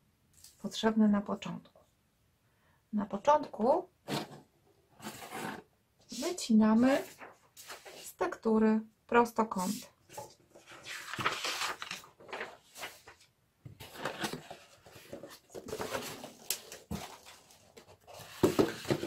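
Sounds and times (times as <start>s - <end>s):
cardboard rustling and scraping: 4.0s - 8.2s, 9.6s - 19.0s.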